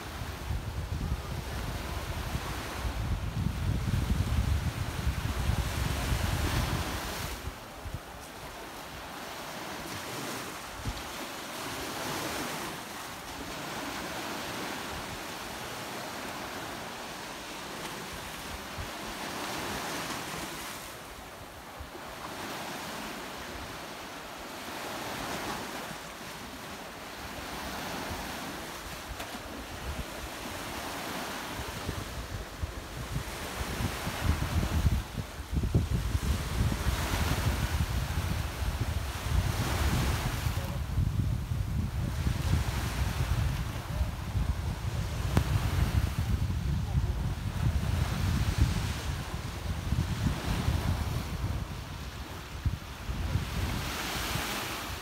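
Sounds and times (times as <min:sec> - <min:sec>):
waves washing onto beach: 0:00.0 - 0:55.0.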